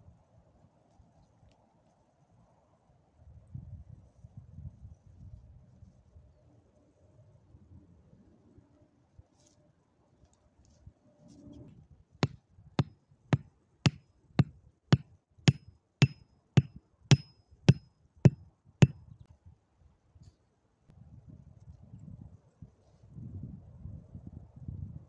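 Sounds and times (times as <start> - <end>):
hatchet hammering tent stake: 12.2 - 17.8.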